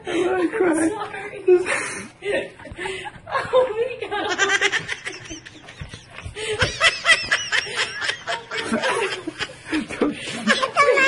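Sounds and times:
person laughing: 0:04.3 - 0:11.0.

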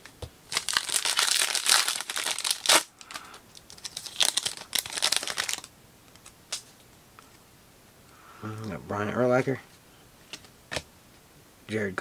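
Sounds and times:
wrapper crinkling: 0:00.5 - 0:05.7
wrapper tearing: 0:00.5 - 0:05.7.

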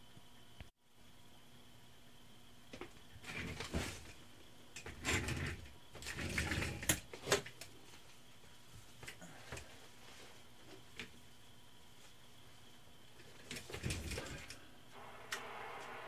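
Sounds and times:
faint hum with high tone: 0:00.0 - 0:16.0
rustling and shuffling: 0:02.8 - 0:04.3, 0:05.9 - 0:14.4.

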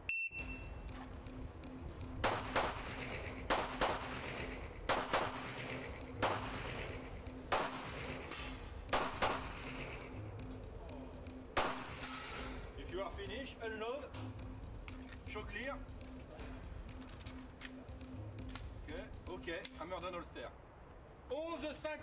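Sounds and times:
handgun shots: 0:02.2 - 0:06.8, 0:07.5 - 0:09.7, 0:11.6 - 0:12.5.

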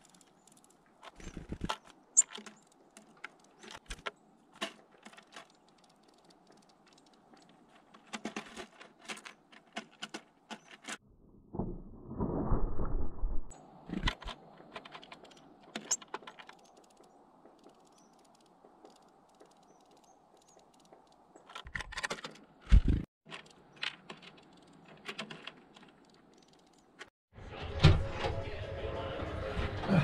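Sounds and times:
bird pecking seeds: 0:00.0 - 0:11.0.

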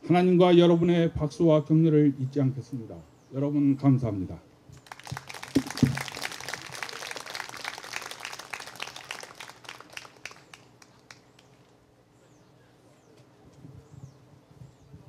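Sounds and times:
audience applauding: 0:04.8 - 0:11.5.

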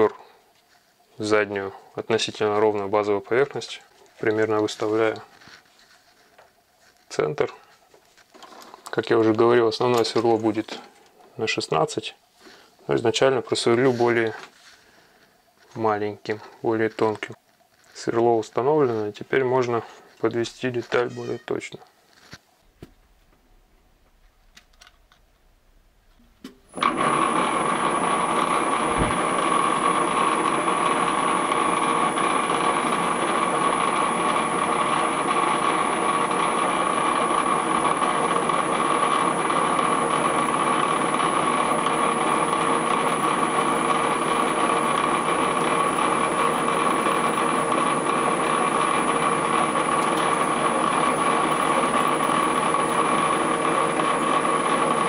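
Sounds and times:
lathe running with whine: 0:26.7 - 0:55.0.

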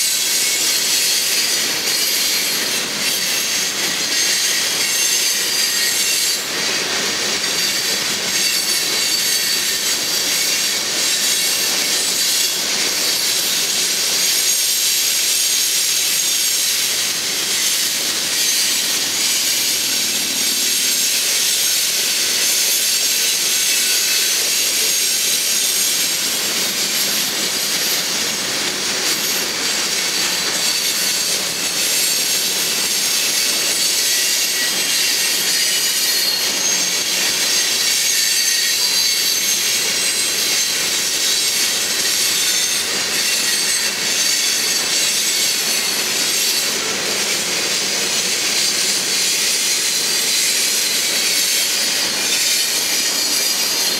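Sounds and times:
train wheels rolling on rails: 0:00.0 - 0:53.9
high-pitched wheel squeal: 0:30.2 - 0:46.5.

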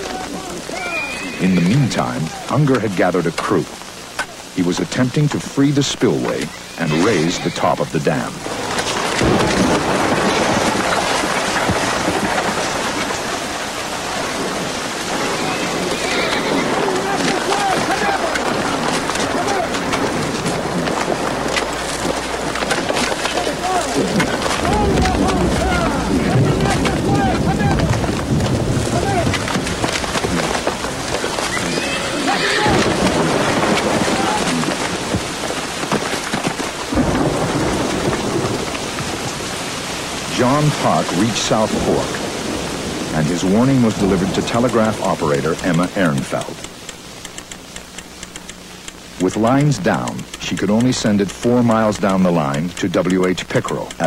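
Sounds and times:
heavy rain pouring: 0:00.0 - 0:54.0
thunder rumbling: 0:08.4 - 0:45.9.

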